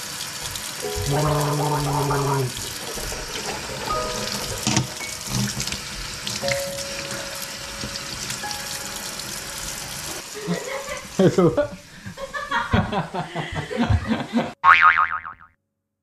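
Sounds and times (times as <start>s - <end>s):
tap water running into sink: 0.0s - 11.3s
soft music notes: 0.8s - 10.2s.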